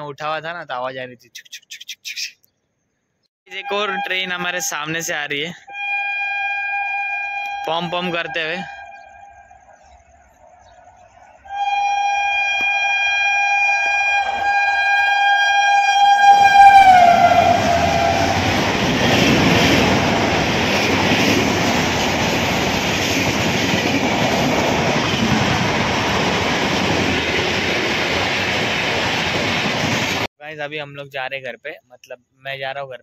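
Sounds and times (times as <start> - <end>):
train horn blast: 3.5 - 4.7, 5.7 - 9.6, 11.5 - 19.4
train coaches rattling on rails: 16.4 - 30.3.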